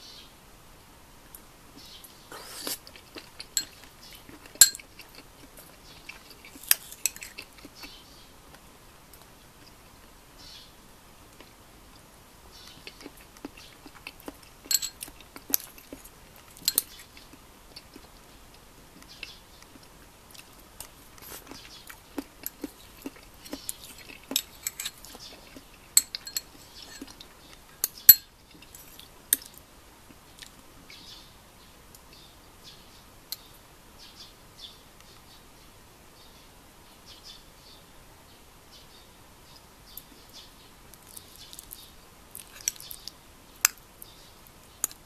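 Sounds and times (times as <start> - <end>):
chewing: 1.8 - 8.0, 12.6 - 30.6, 40.9 - 43.8
metal spoon scraping ceramic bowl: 14.7 - 15.0, 26.0 - 27.2.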